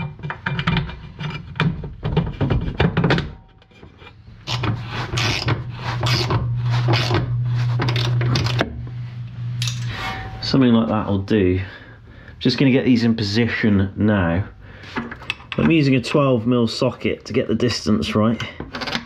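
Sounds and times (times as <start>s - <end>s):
metal fittings knocking and rattling: 0.0s - 7.2s
low steady hum: 0.0s - 19.0s.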